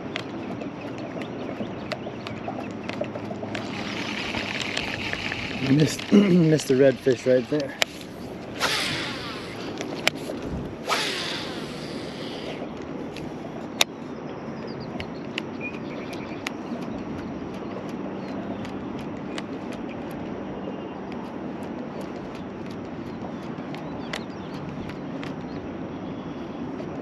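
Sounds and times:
water noise: 0.0 - 27.0
wind: 0.0 - 27.0
fishing reel spool whirring: 3.4 - 12.7
sharp reel click: 10.8 - 12.6.

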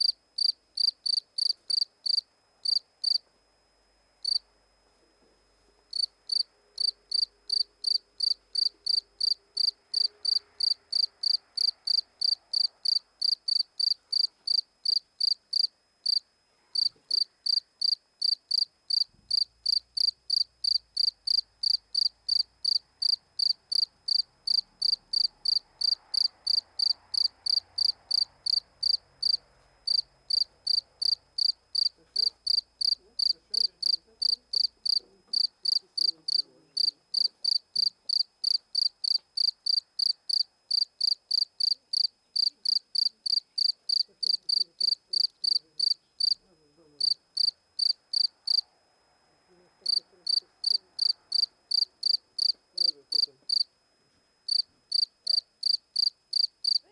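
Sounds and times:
cricket chirping: 0.0 - 3.2, 4.2 - 4.4, 5.9 - 48.7, 49.8 - 53.7, 54.4 - 56.9.

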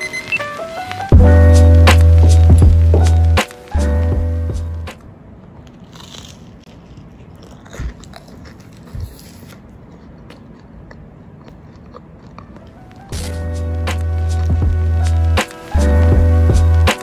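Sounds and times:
background music: 0.0 - 5.0, 12.6 - 17.0
crunching on crisp toast: 5.6 - 14.6.

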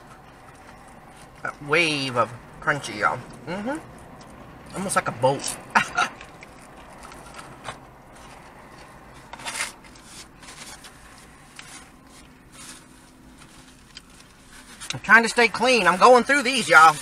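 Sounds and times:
paper wrappers rustling: 4.0 - 17.0.

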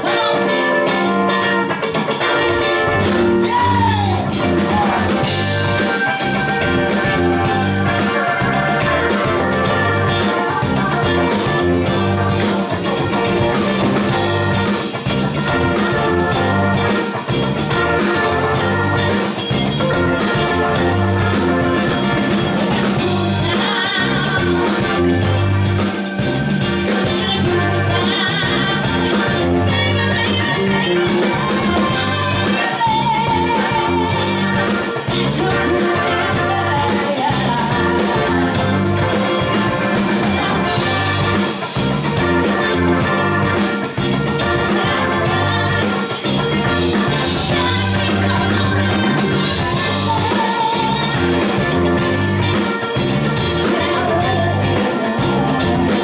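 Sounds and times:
woman singing: 0.0 - 1.1, 3.4 - 7.2, 7.9 - 14.7, 22.9 - 25.3, 26.9 - 41.6, 44.4 - 52.1, 53.4 - 56.0
live rock band playing: 0.0 - 56.0.

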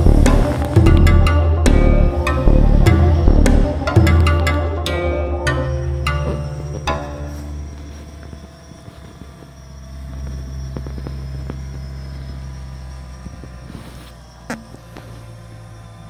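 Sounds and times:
distant drone propellers humming: 0.0 - 16.0
low steady rumble: 0.0 - 16.0
faint clicks: 7.7 - 16.0.

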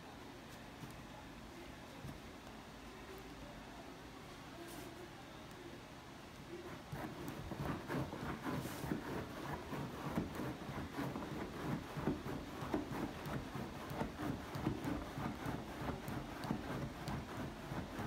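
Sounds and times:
dog digging at fabric: 6.7 - 18.0.

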